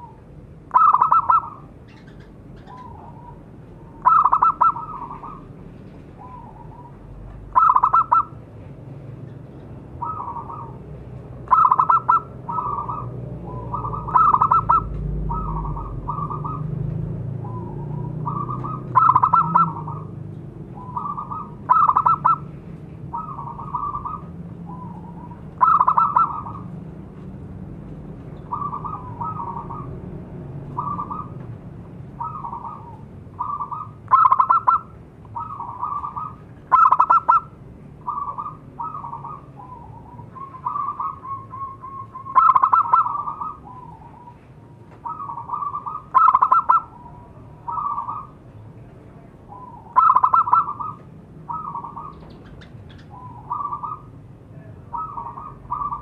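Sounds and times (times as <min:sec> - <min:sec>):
dove cooing: 0:00.0 - 0:08.5, 0:10.0 - 0:26.8, 0:28.3 - 0:48.4, 0:49.4 - 0:56.0.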